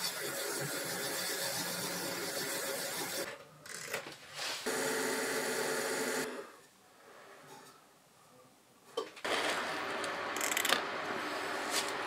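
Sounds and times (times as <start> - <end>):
sanding mesh rubbing spinning wood: 0.0 - 3.3.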